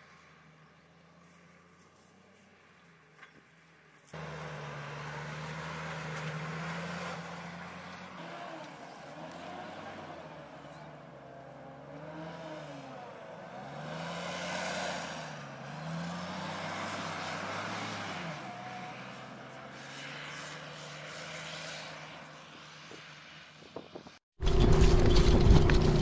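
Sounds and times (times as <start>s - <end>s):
diesel engine revving: 4.2s - 22.0s.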